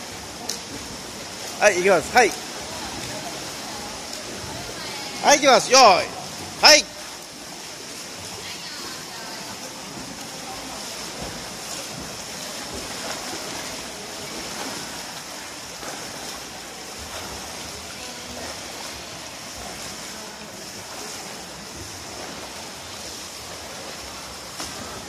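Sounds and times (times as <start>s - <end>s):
echoing pool water wash: 0.0s - 25.0s
swimmer splashing: 0.0s - 25.0s.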